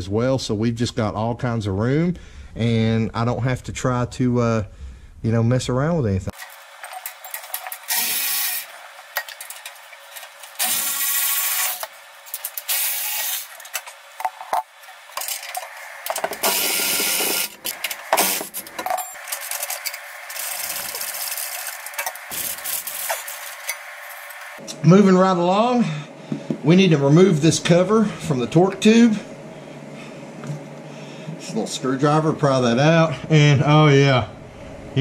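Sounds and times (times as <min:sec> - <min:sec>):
wrench ratcheting on metal: 0:06.4 - 0:08.7, 0:10.6 - 0:13.6.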